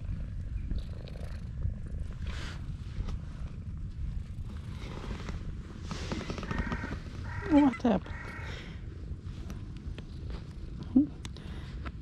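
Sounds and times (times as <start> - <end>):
cat purring loudly: 0.0 - 2.6.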